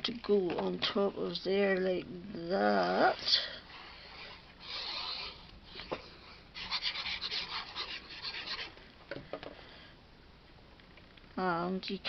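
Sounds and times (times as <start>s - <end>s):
glue nozzle scratching cardstock: 4.1s - 5.5s.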